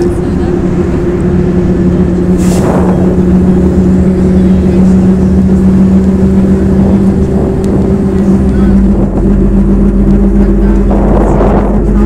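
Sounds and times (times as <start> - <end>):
bus engine hum: 0.0 - 12.0
road rumble: 0.0 - 12.0
brief rush of noise: 2.3 - 3.3.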